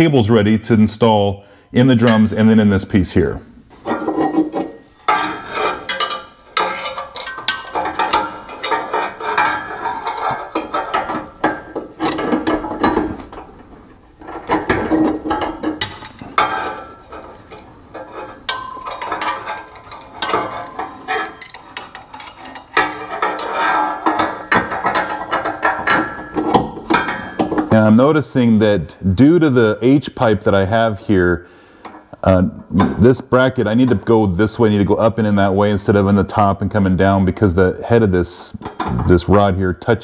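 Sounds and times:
metal parts clinking: 3.9 - 13.4, 14.2 - 27.6.

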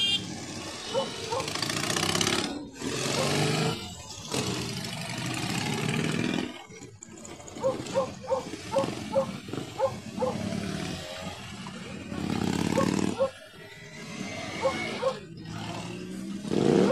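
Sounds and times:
short horn toots: 0.0 - 0.3
motorcycle engines passing: 0.0 - 16.9.

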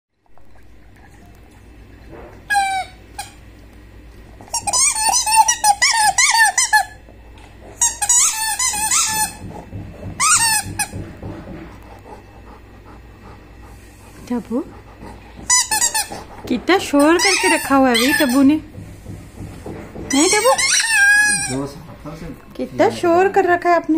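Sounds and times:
squeaky rubber ball squeaking: 4.5 - 7.0, 7.8 - 9.4, 10.2 - 11.0, 15.4 - 16.2, 16.9 - 18.5, 20.1 - 21.8.

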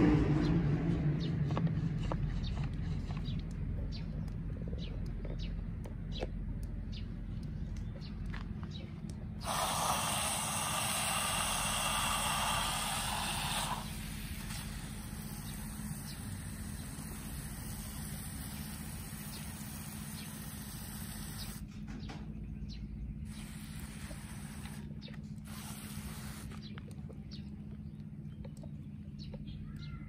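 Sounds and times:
pressure sprayer hissing: 9.4 - 21.6, 23.3 - 26.7.

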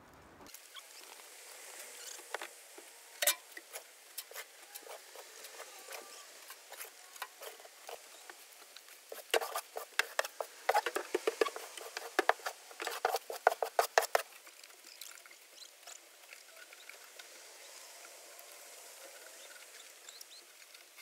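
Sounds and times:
shovel scraping wooden floor: 9.1 - 14.3.

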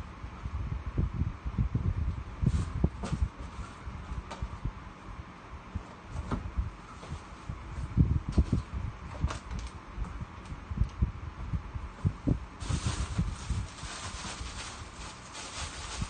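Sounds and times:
rustle: 12.6 - 16.0.

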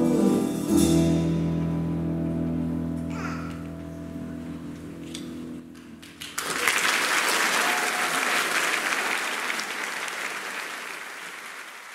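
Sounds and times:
audience applause: 6.0 - 11.9.

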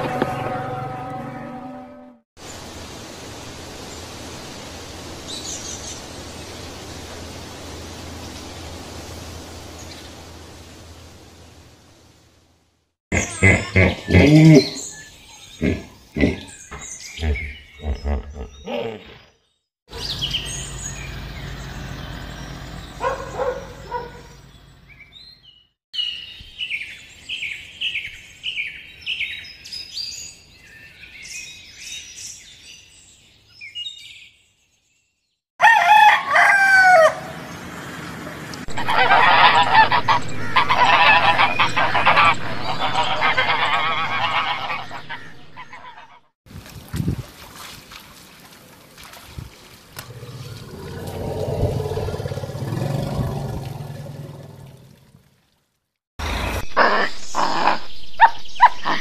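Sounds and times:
loud calls: 38.7 - 46.2
geese honking: 38.7 - 46.3.

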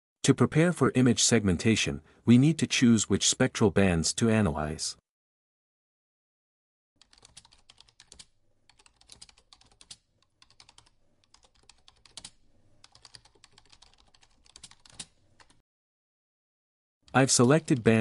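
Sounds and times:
typing on computer keyboard: 7.0 - 15.6, 17.1 - 18.0.

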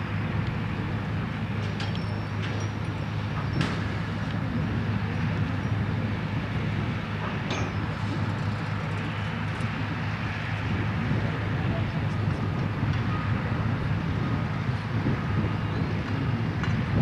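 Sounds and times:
crane diesel engine running: 0.0 - 17.0.

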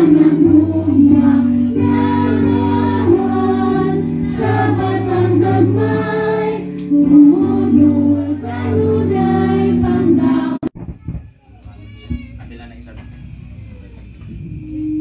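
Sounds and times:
group singing: 0.0 - 10.7
woman singing through a microphone: 0.0 - 10.7.

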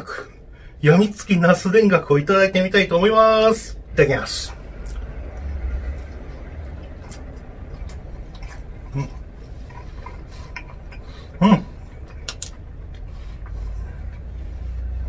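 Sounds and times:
person chewing: 4.6 - 14.9.

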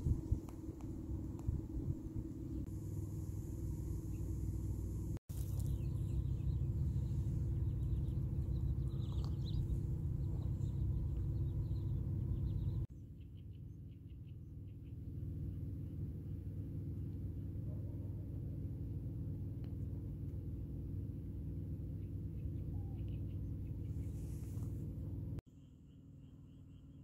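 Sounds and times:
wind buffeting microphone: 0.0 - 2.7
faint high chirping calls: 5.4 - 15.0, 22.0 - 24.3, 25.5 - 27.0.

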